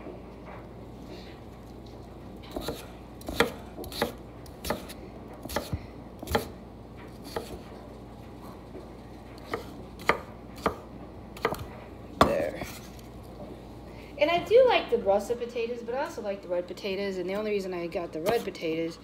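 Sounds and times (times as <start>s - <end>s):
knife chopping on wooden board: 2.5s - 6.6s, 7.2s - 7.7s, 9.4s - 12.8s.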